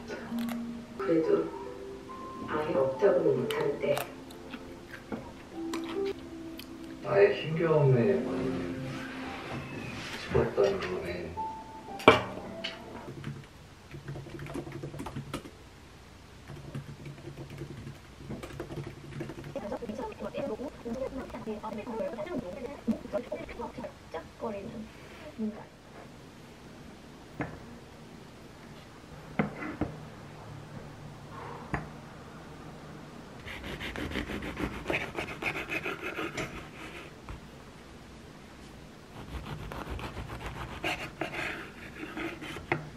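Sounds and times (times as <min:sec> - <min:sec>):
knife sawing crusty bread: 0:33.5 - 0:37.1, 0:39.2 - 0:42.7.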